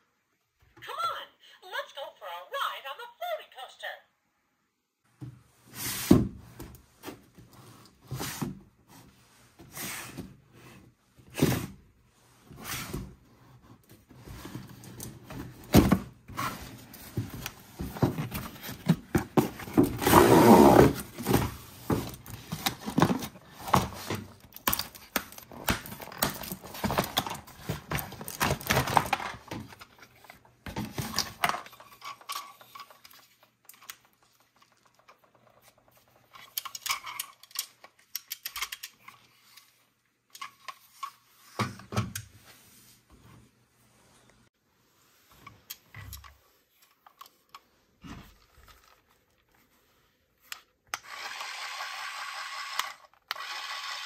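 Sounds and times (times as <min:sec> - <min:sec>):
cardboard scraping and rustling: 0:05.7 - 0:32.8.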